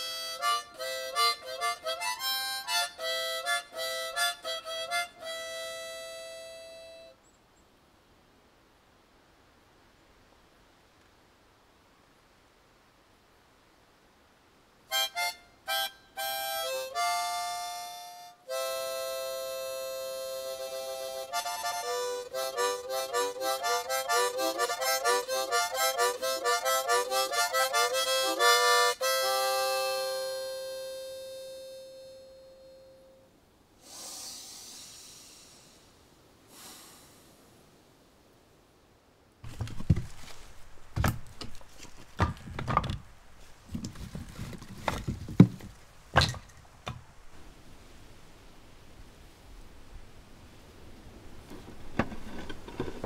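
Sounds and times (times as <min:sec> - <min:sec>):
harmonica playing: 0:00.0 - 0:07.2, 0:14.9 - 0:33.3
objects knocking and clattering: 0:41.0 - 0:43.0, 0:43.7 - 0:47.0.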